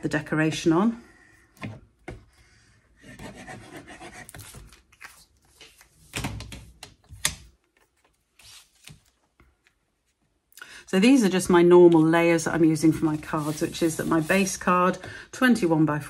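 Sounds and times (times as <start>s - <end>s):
card stock rubbing: 12.9s - 14.5s.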